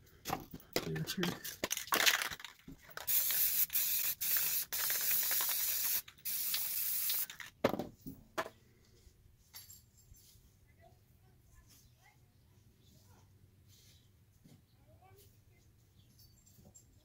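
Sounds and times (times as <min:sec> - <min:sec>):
spray can hissing: 0:03.0 - 0:07.4.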